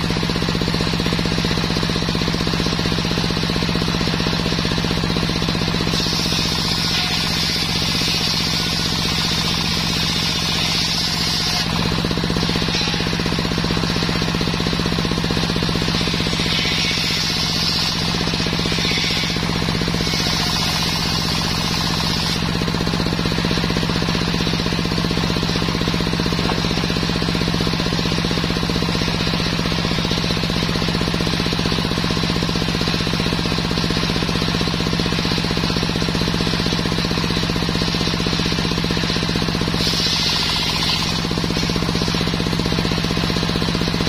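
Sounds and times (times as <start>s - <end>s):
saw blade cutting wood: 0.0s - 44.0s
stationary engine knocking: 0.0s - 44.0s.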